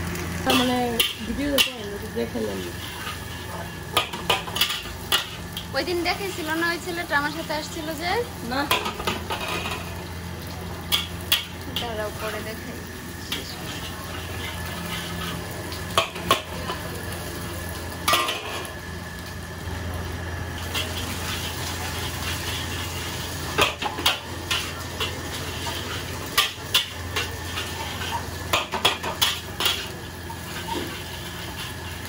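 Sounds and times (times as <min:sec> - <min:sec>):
frying sizzle: 0:00.0 - 0:32.0
ladle scraping a wok: 0:00.4 - 0:05.6, 0:13.3 - 0:16.3.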